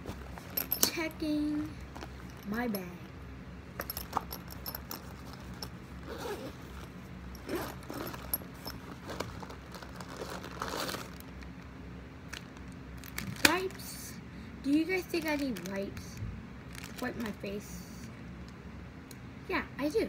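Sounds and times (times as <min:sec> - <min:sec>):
backpack zipper: 0:05.2 - 0:11.2
clicks and rustles: 0:06.6 - 0:11.5
plastic pack crinkling: 0:07.6 - 0:11.6, 0:12.3 - 0:13.8, 0:15.0 - 0:17.3.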